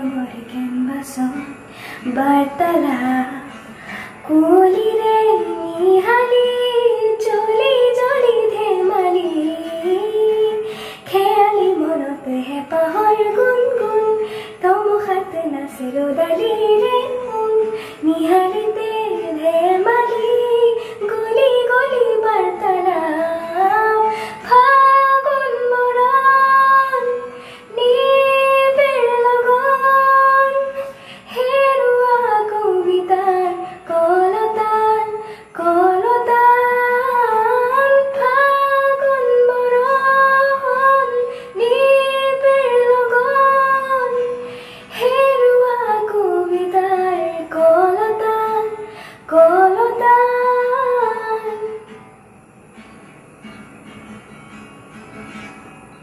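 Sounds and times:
girl singing slow melody: 0:00.0 - 0:53.0
singer breathing: 0:01.6 - 0:02.1, 0:03.5 - 0:04.2, 0:10.6 - 0:11.1, 0:14.2 - 0:14.6, 0:17.7 - 0:18.0, 0:24.1 - 0:24.4, 0:27.2 - 0:27.7, 0:30.8 - 0:31.3, 0:35.2 - 0:35.5, 0:41.3 - 0:41.6, 0:44.4 - 0:45.0, 0:48.8 - 0:49.3.

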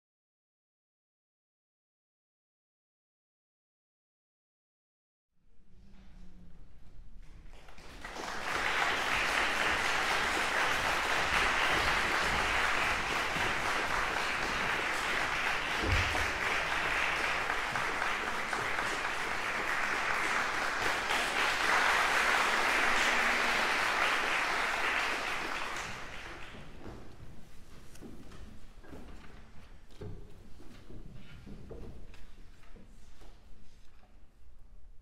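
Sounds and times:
audience applauding: 0:07.5 - 0:26.8.

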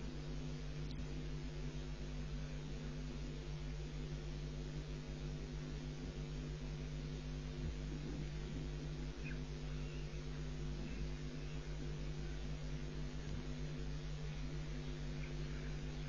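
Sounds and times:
low electrical hum with hiss: 0:00.0 - 0:16.0.

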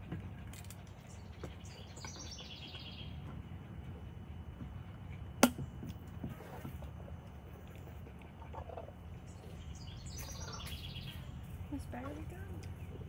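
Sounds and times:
bird chirping: 0:01.0 - 0:03.2, 0:09.2 - 0:11.6.

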